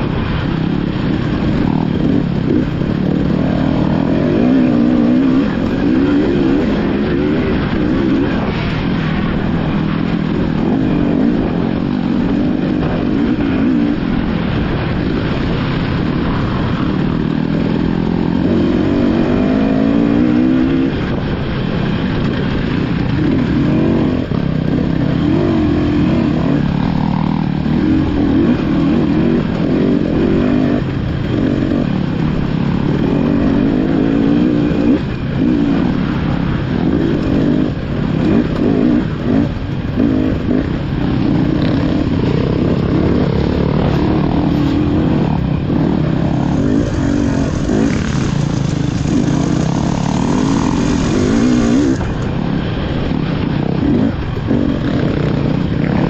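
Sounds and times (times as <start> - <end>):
dirt bike engine revving: 0.0 - 56.0
other dirt bikes running: 0.0 - 56.0.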